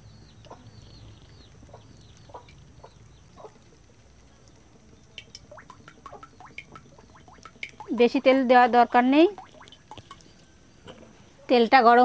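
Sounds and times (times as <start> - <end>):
chickens clucking: 0.4 - 4.1.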